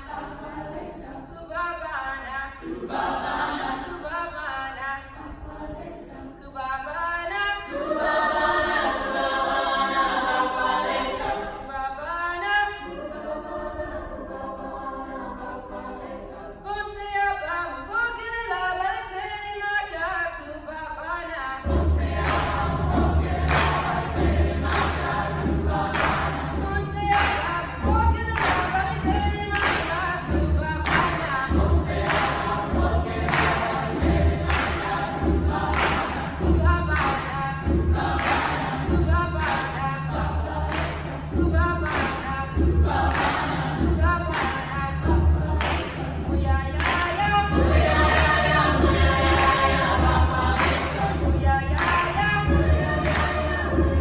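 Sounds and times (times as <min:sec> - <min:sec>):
mixed choir singing a cappella: 0:00.0 - 0:54.0
clapped beat: 0:21.7 - 0:54.0.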